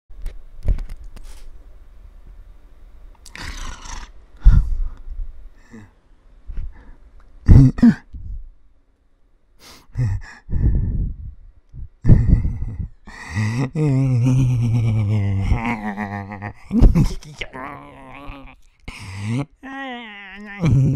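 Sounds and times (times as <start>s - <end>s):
person breathing and sighing: 3.3s - 8.4s, 9.6s - 20.9s.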